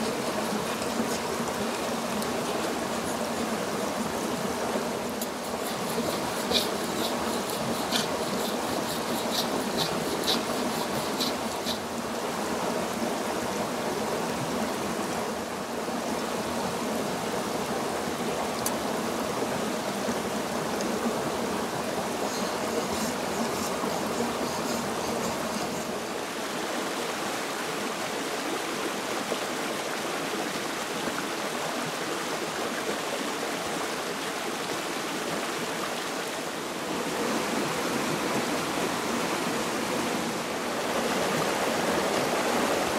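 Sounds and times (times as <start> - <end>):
creek water rushing: 0.0 - 42.9
knife scraping on whetstone: 5.2 - 11.8, 22.2 - 26.0.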